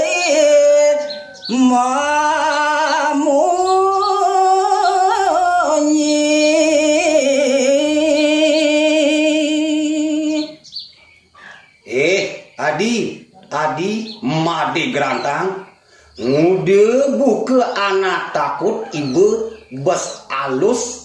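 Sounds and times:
man singing unaccompanied: 0:00.0 - 0:10.7, 0:11.8 - 0:21.0.

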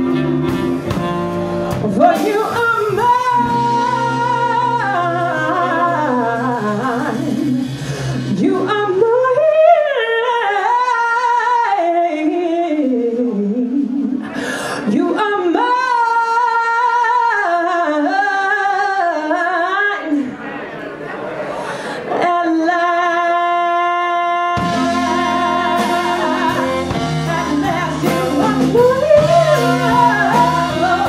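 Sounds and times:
blues band playing: 0:00.0 - 0:09.4, 0:24.0 - 0:31.0
person singing: 0:00.0 - 0:20.2, 0:22.2 - 0:31.0.

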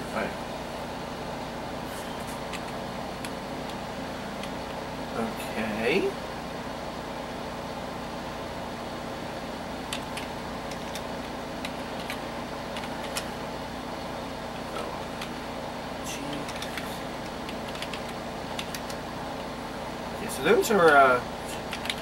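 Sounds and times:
computer fans humming: 0:00.0 - 0:22.0
computer keyboard keys clicking: 0:02.5 - 0:03.8, 0:09.9 - 0:13.3, 0:16.3 - 0:19.0, 0:21.6 - 0:22.0.

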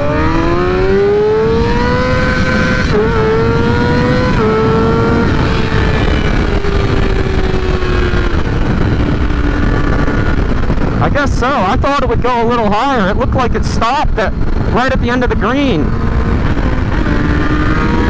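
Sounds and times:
motorcycle engine revving high: 0:00.0 - 0:18.0.

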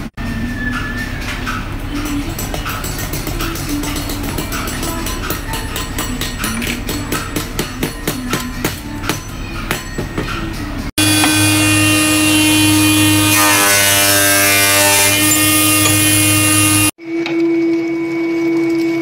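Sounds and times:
woodworking machine whine: 0:11.0 - 0:19.0.

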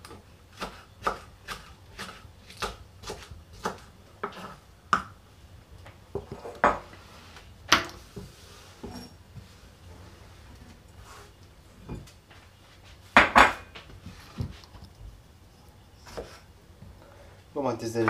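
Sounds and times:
knife chopping on wooden board: 0:00.5 - 0:05.1.

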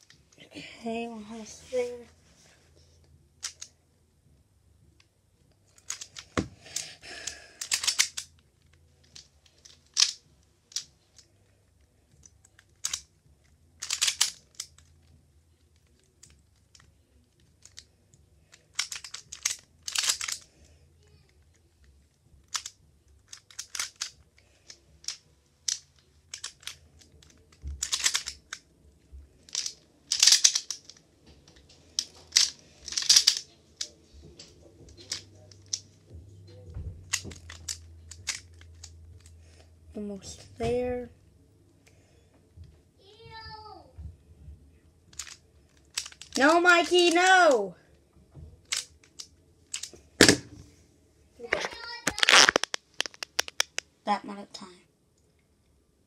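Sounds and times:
puzzle pieces clicking and rasping: 0:03.4 - 0:03.7, 0:05.7 - 0:11.3, 0:12.2 - 0:13.1, 0:13.8 - 0:15.1, 0:18.5 - 0:20.6, 0:22.4 - 0:28.6, 0:29.4 - 0:33.9, 0:37.0 - 0:39.4, 0:45.1 - 0:47.6, 0:48.7 - 0:50.0, 0:51.5 - 0:53.9.

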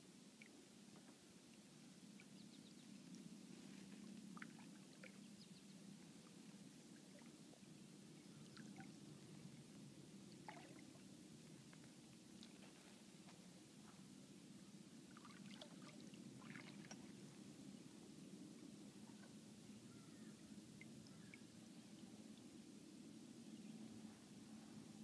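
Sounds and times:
low steady background noise: 0:00.0 - 0:25.0
small water drips: 0:04.0 - 0:09.1, 0:09.7 - 0:14.0, 0:15.1 - 0:17.2, 0:20.7 - 0:21.6.

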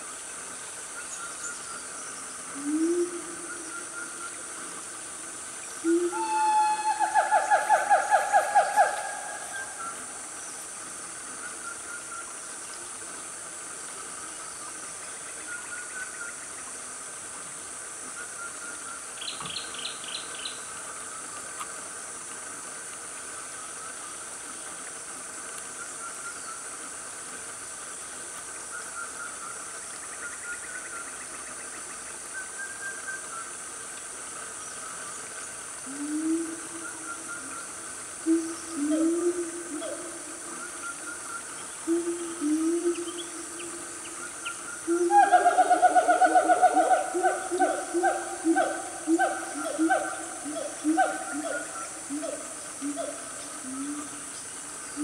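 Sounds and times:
high insect drone: 0:00.0 - 0:55.0
siamangs calling: 0:05.9 - 0:10.1, 0:44.9 - 0:54.1.

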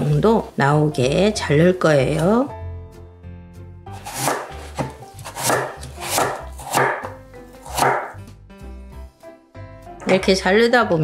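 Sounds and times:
knife cutting on wooden board: 0:03.9 - 0:08.2.

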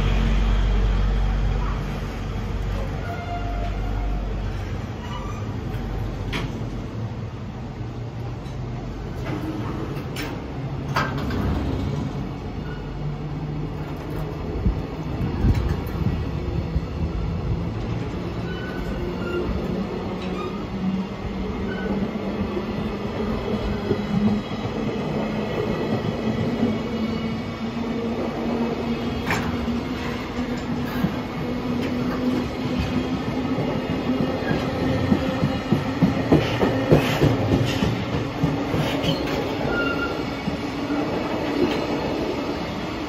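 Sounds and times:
train wheels rumbling on rail: 0:00.0 - 0:43.0
wheel squeals: 0:05.0 - 0:05.7, 0:18.4 - 0:20.6, 0:38.7 - 0:40.3
train wagons clanking: 0:08.3 - 0:13.0, 0:29.1 - 0:42.0.

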